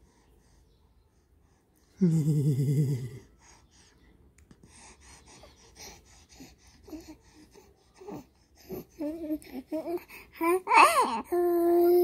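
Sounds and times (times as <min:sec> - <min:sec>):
soft breathing: 0:00.0 - 0:02.3, 0:02.9 - 0:10.4
faint short vocal sounds: 0:01.8 - 0:03.6.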